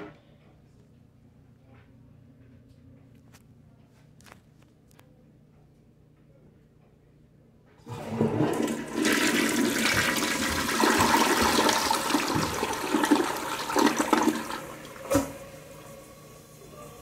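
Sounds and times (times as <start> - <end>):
toilet flushing: 7.8 - 17.0.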